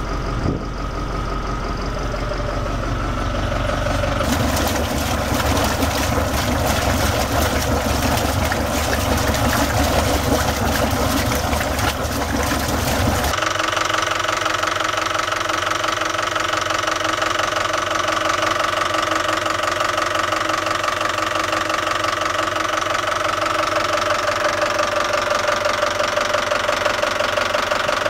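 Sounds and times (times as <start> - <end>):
boat engine humming: 0.0 - 13.4
water churning and splashing: 3.8 - 13.4.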